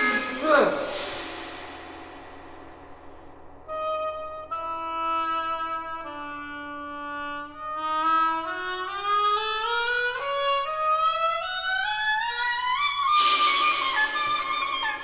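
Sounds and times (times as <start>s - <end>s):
solo oboe playing: 3.7s - 13.3s
tam-tam crash: 13.1s - 15.0s.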